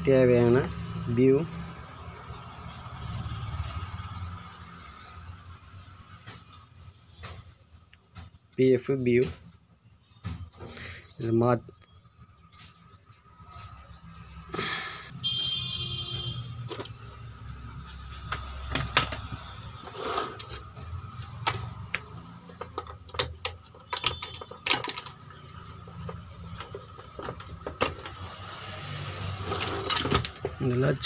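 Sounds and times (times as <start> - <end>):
hands handling wiring and connectors: 16.6 - 17.4, 18.2 - 28.2.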